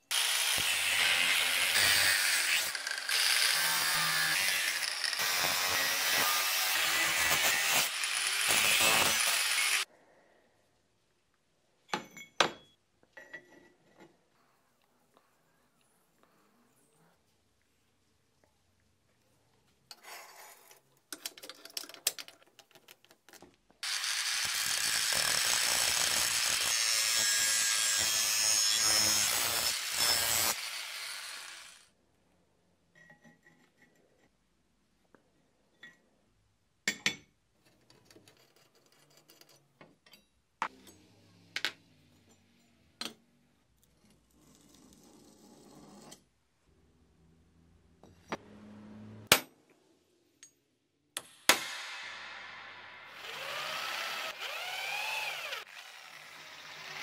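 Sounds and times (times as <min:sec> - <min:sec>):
power tool running on metal: 0:53.2 - 0:57.0.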